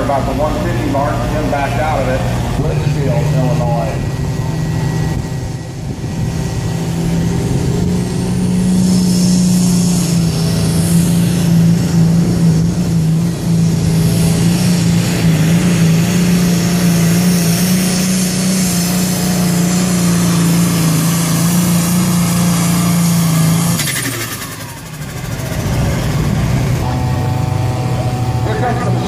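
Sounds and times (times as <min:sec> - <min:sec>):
diesel engine running flat out: 0:00.0 - 0:29.0.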